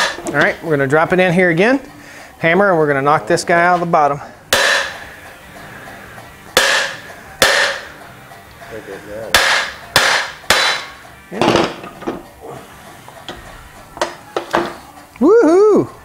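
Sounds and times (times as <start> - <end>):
hammer striking steel punch: 4.5 - 5.1, 6.5 - 7.9, 9.3 - 11.9.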